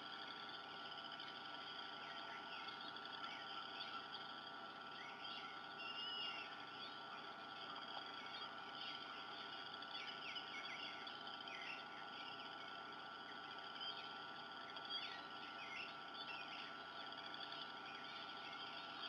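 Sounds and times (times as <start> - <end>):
faint bird chirps: 0.0 - 19.0
steady faint tone: 0.0 - 19.0.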